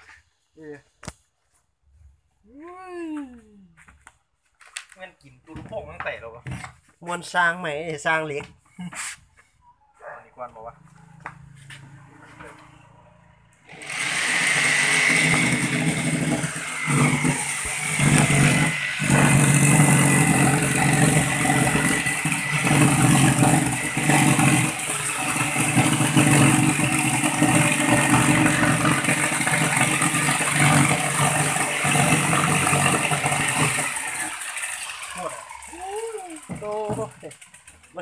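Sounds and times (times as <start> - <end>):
electric jigsaw cutting: 13.6 - 38.0.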